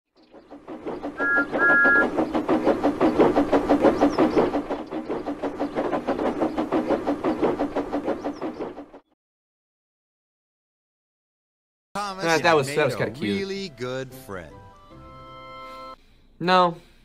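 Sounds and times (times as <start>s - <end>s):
steam engine chuffing: 0.3s - 9.0s
two-tone steam whistle: 1.2s - 2.1s.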